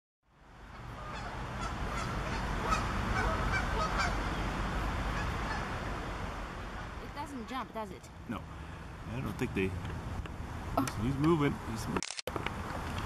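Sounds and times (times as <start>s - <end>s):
low outdoor rumble: 0.3s - 13.0s
birds calling: 0.7s - 7.4s.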